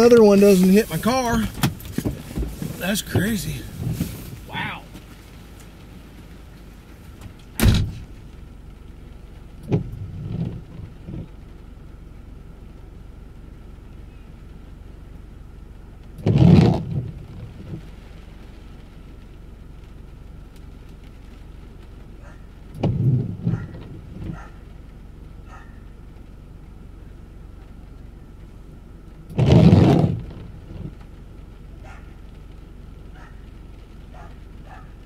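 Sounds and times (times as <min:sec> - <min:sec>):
wind gusts buffeting a car: 0:00.0 - 0:11.8, 0:15.9 - 0:20.1, 0:20.8 - 0:26.3, 0:29.2 - 0:35.0
steady low hum: 0:00.0 - 0:35.0.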